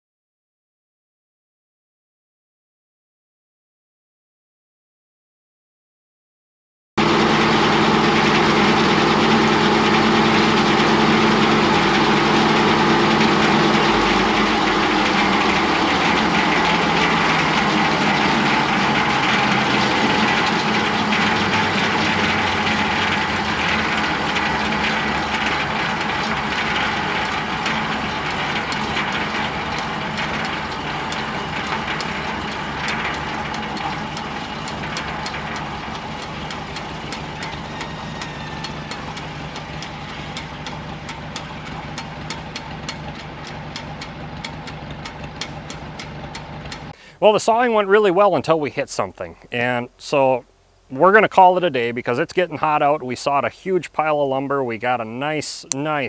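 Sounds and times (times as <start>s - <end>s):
old tractor engine running: 7.0s - 48.6s.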